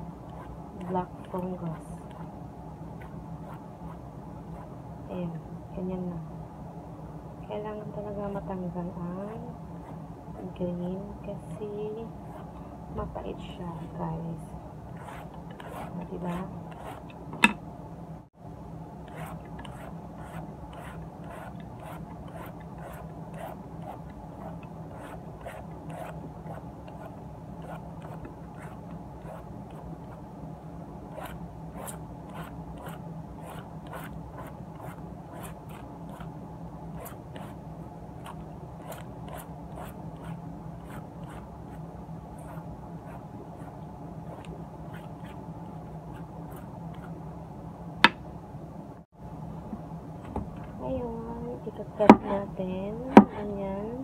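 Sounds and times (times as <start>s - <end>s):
steady low hum: 0.0s - 54.0s
blade scraping squash skin: 19.1s - 29.9s.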